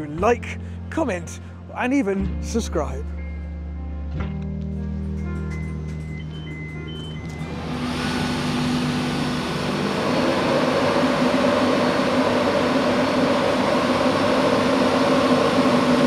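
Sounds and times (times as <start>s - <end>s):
mechanical hum with fan noise: 5.0s - 16.0s.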